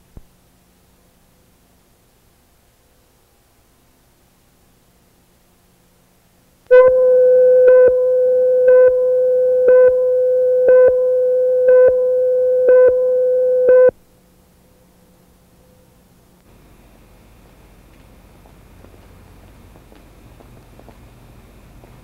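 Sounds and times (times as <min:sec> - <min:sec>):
countdown blips: 0:06.7 - 0:13.9
steady test tone: 0:06.7 - 0:14.0.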